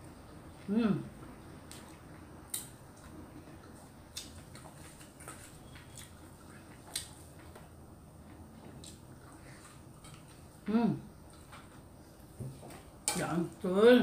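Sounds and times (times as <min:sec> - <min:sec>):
person chewing food: 0:01.6 - 0:10.6.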